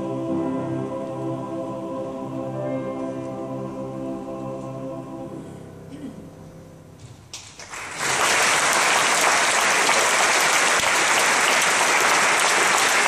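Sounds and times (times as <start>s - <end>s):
audience applause: 7.4s - 13.0s.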